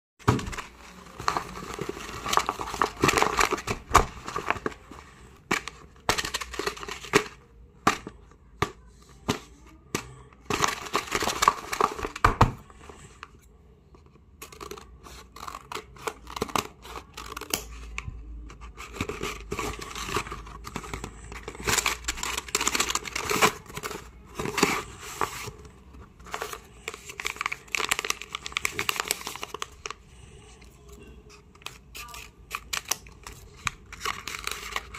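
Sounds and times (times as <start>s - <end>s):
paper rustling and tearing: 31.5s - 34.9s
scissors cutting paper: 31.5s - 34.9s.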